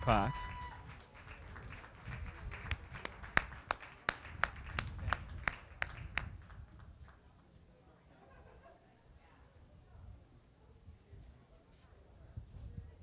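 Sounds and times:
hand clapping: 0.9s - 7.2s.

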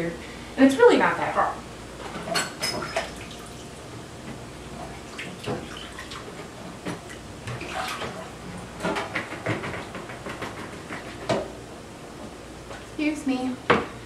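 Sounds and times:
water sloshing in sink: 2.2s - 3.8s, 4.7s - 11.0s.

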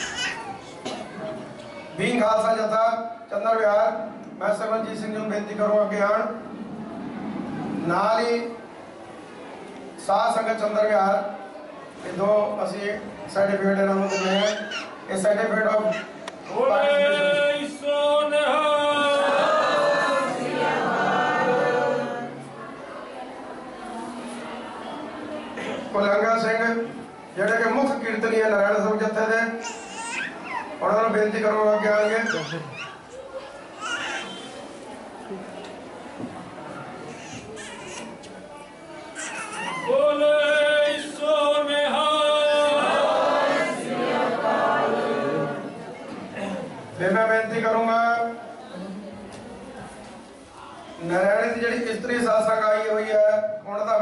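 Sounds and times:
many voices shouting together: 18.6s - 22.3s.

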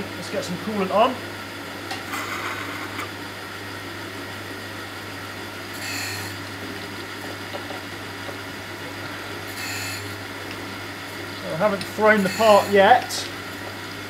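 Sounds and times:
grinding and coolant hiss: 0.0s - 3.4s, 5.0s - 14.0s
grinder motor hum: 0.0s - 14.0s
harsh grinding rasps: 11.5s - 13.0s.

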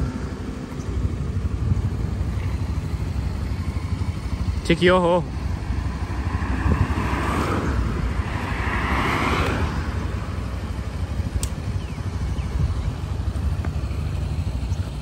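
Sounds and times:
road traffic rumble: 0.0s - 15.0s
vehicle passing: 5.3s - 11.2s
sharp click: 11.3s - 11.7s.

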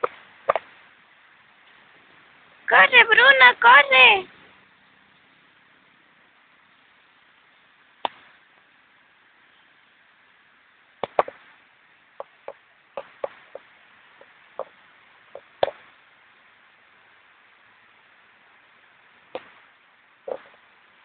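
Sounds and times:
sharp taps and knocks: 11.0s - 11.4s, 12.2s - 14.7s, 15.3s - 15.8s, 19.3s - 19.6s.

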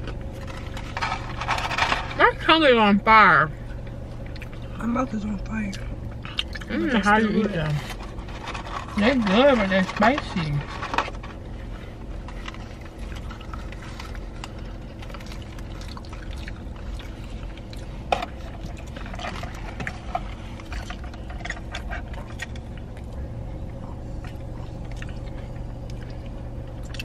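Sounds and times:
low hum inside car: 0.0s - 27.0s
person chewing: 5.7s - 6.9s, 12.3s - 27.0s.

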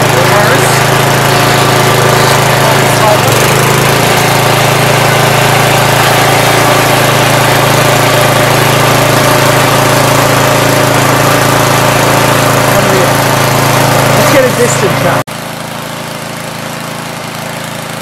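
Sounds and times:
tiller engine running: 0.0s - 18.0s.

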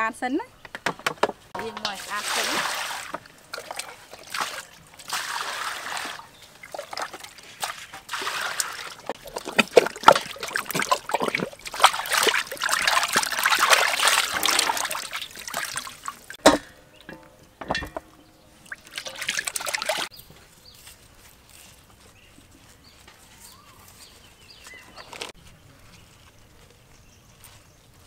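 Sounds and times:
water splashing and sloshing: 1.6s - 20.1s.

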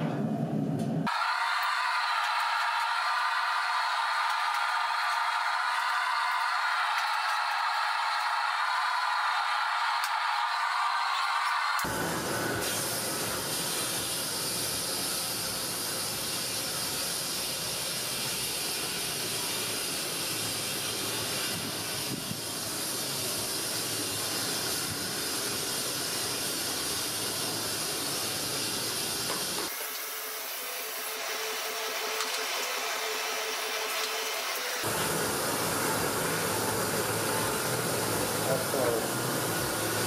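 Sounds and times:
furnace burner rushing hiss: 0.6s - 40.0s.

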